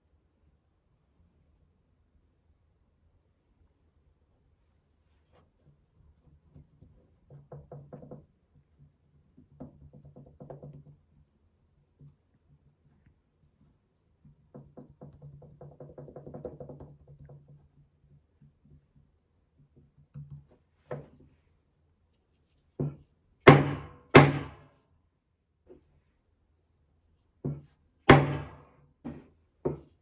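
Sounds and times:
soft patting of dough: 4.4s - 23.5s, 25.5s - 28.2s
wooden mould knocking on table: 27.4s - 29.9s.

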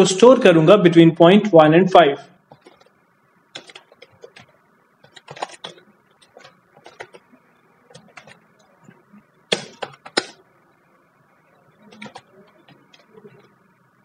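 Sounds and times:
keyboard typing clicks: 3.5s - 7.2s, 7.9s - 8.7s, 9.5s - 10.4s, 11.8s - 13.5s.

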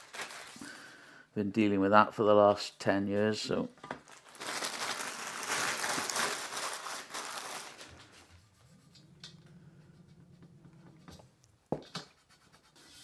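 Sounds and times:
plastic sleeve crinkling: 0.0s - 0.8s, 3.8s - 8.3s.

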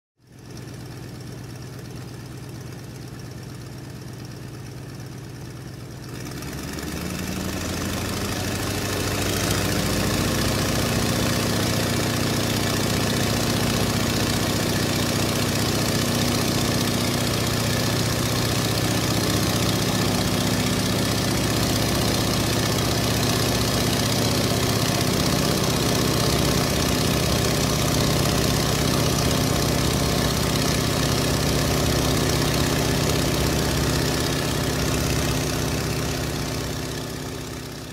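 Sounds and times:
engine humming: 6.8s - 37.9s.

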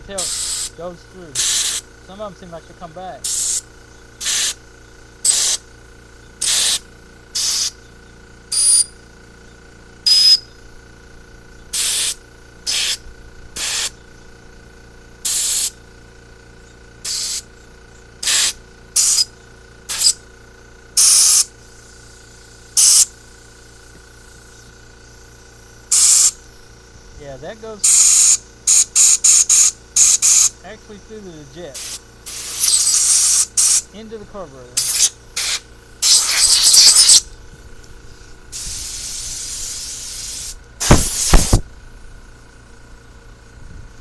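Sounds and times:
compressed air blow gun hisses: 0.0s - 2.0s, 3.2s - 5.8s, 6.4s - 7.8s, 11.7s - 14.0s, 15.2s - 15.8s, 17.0s - 17.5s, 18.2s - 20.3s, 21.0s - 25.2s, 25.8s - 30.6s, 31.6s - 34.0s, 34.8s - 37.2s, 38.0s - 41.7s
high air whistle: 10.1s - 10.5s.

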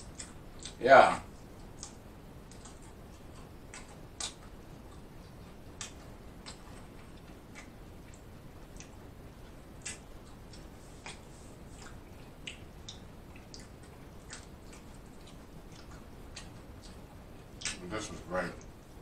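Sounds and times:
chewing clicks: 0.0s - 0.8s, 1.6s - 17.8s
wet lip smacks: 9.8s - 17.0s, 17.6s - 17.8s.

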